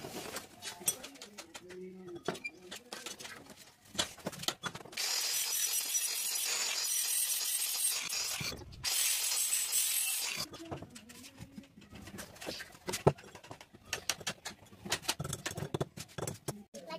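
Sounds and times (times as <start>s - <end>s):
angle grinder grinding metal: 5.0s - 10.5s.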